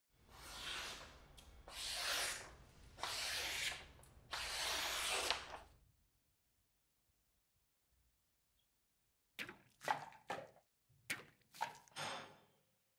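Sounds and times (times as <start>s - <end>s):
knife slicing paper: 1.7s - 5.6s.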